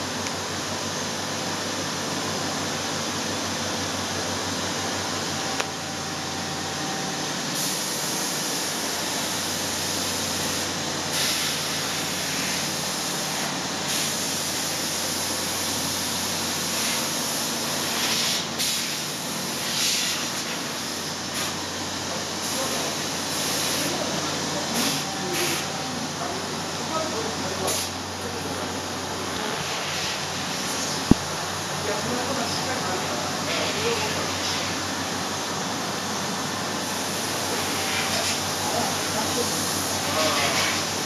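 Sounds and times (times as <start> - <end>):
machine hiss: 7.4 - 25.8, 36.0 - 41.0.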